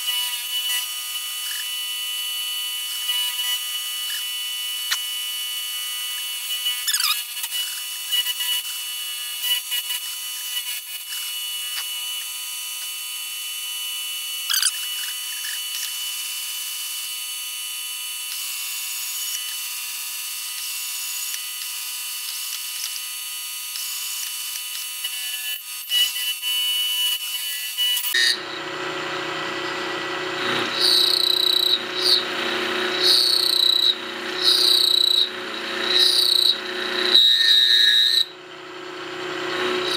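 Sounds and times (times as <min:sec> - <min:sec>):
end mill cutting metal whine: 0:28.1 - 0:39.9.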